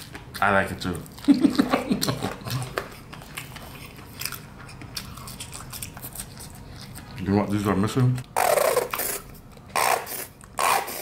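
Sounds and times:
crunchy chewing: 0:00.0 - 0:07.6.

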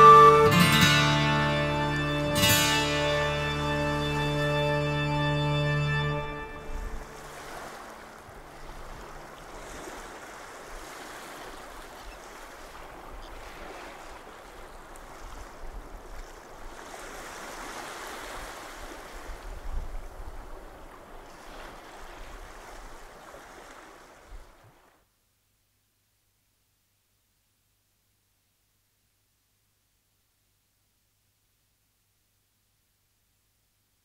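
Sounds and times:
sea waves washing on shore: 0:01.9 - 0:25.0.

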